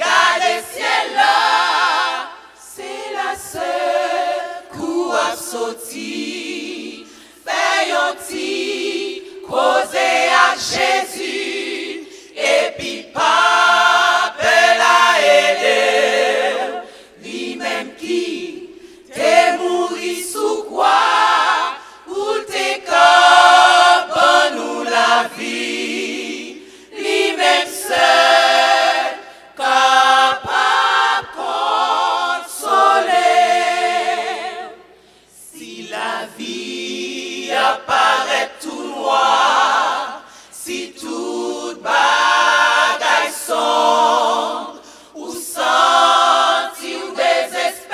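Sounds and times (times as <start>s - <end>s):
women's choir singing a cappella: 0.0s - 47.9s
singers breathing: 7.0s - 7.5s, 12.0s - 12.4s, 16.8s - 17.2s, 18.7s - 19.1s, 21.8s - 22.1s, 26.6s - 27.0s, 34.8s - 35.4s, 40.2s - 40.6s, 44.8s - 45.2s.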